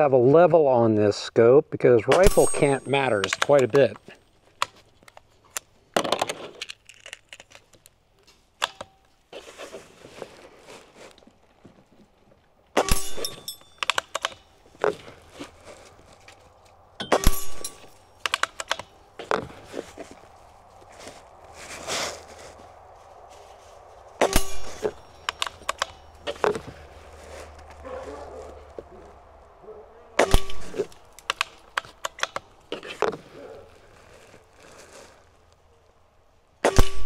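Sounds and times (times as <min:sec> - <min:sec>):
pellet ringing on steel target: 0:02.1 - 0:03.3, 0:12.8 - 0:13.8, 0:17.0 - 0:18.1, 0:24.2 - 0:26.3
air rifle bolt clicks: 0:13.8 - 0:14.4, 0:18.2 - 0:18.9, 0:25.2 - 0:26.0, 0:30.2 - 0:32.5
air rifle shots: 0:24.2 - 0:26.0, 0:30.2 - 0:31.5.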